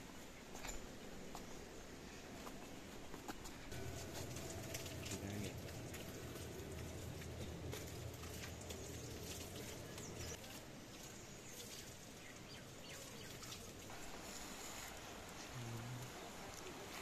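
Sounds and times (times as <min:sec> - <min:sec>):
birds chirping: 0:00.2 - 0:17.0
water splashing from spout: 0:03.8 - 0:13.9.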